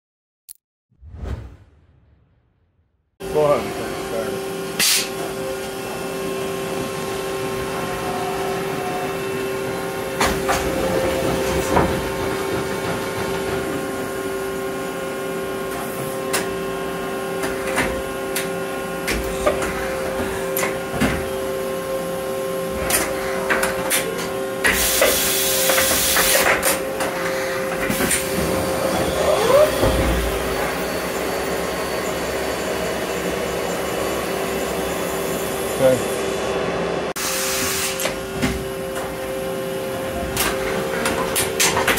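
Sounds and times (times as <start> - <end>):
two-tone motor whine: 3.2 - 41.9.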